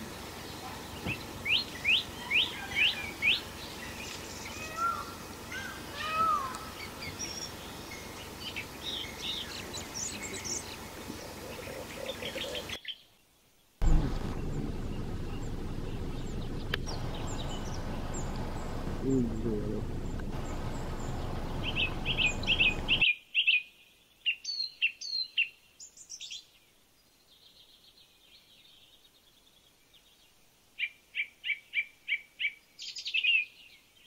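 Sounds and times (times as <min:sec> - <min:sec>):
background hiss: 0:00.0 - 0:34.0
birds chirping and whistling: 0:00.4 - 0:13.0, 0:14.1 - 0:23.6.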